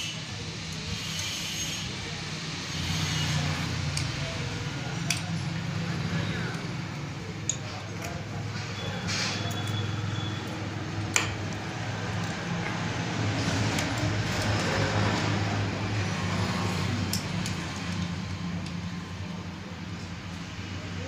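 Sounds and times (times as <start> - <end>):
screwdriver clicking and scraping: 1.0 - 1.7.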